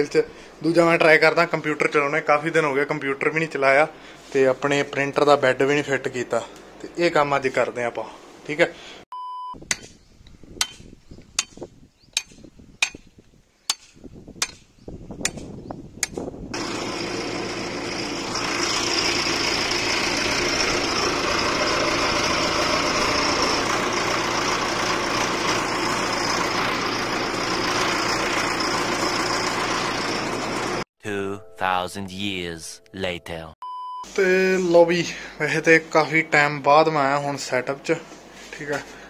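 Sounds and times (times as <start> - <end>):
tractor engine running: 15.2 - 30.8.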